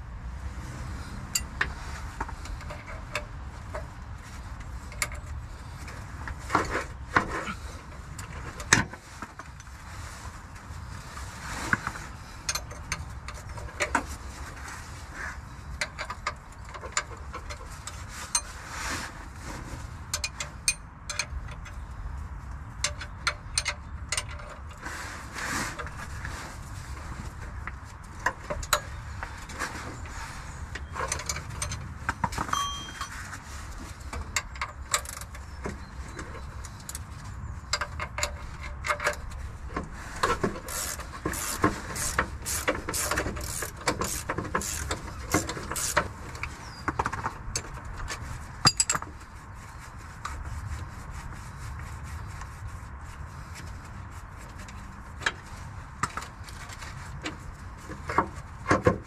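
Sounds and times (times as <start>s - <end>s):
metal tools clinking: 30.8s - 33.4s.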